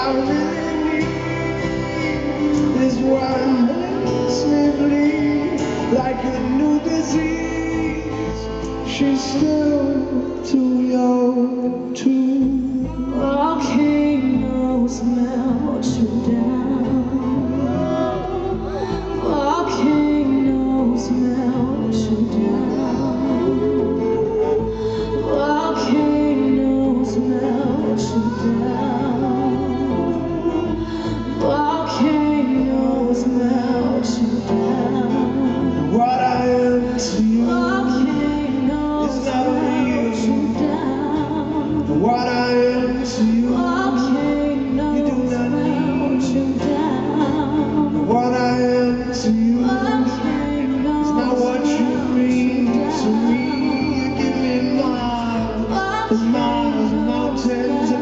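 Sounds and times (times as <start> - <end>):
strummed acoustic guitar: 0.0 - 11.4
person singing: 0.0 - 58.0.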